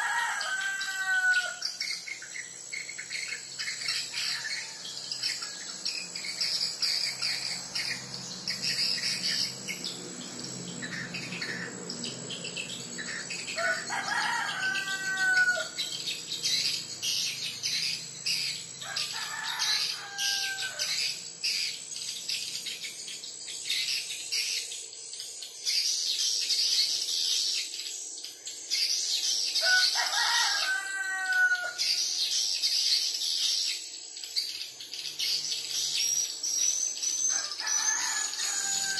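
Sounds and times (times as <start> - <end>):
rooster crowing: 0.0 - 1.9, 4.1 - 5.6, 13.2 - 15.9, 18.8 - 21.1, 29.6 - 32.0, 37.3 - 38.9.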